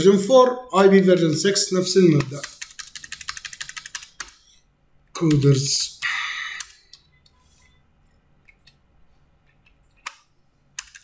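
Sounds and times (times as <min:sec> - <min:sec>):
keyboard key presses: 0:10.8 - 0:11.0.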